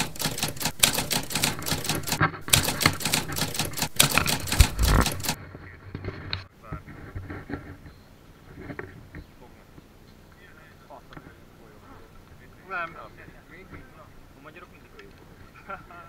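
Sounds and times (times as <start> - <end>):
typewriter keystroke clicks: 0.0 - 5.4.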